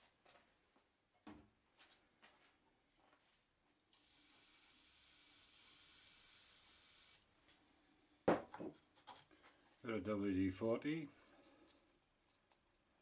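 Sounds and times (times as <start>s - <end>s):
aerosol can spraying hiss: 4.0s - 7.2s.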